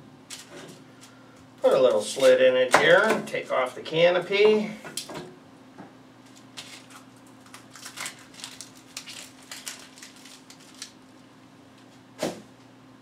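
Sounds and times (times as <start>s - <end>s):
onion skin crackling: 6.3s - 11.2s.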